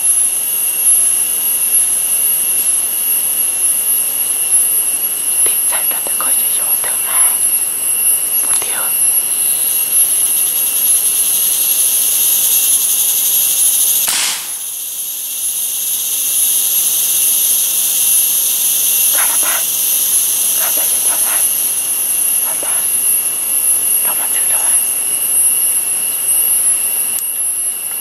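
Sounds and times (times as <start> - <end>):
jungle insects droning: 0.0 - 28.0
air rifle shot: 14.1 - 15.0.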